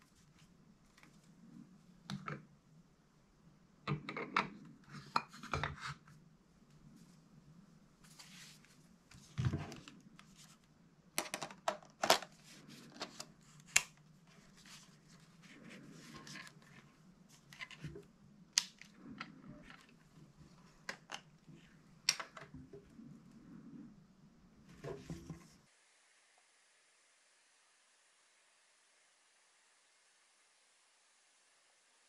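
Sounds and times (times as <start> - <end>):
faint rustling: 6.0 - 10.7.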